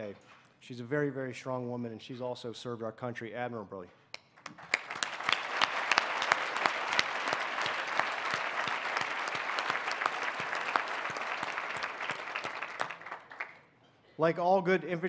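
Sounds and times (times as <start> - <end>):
audience applause: 4.4 - 13.6.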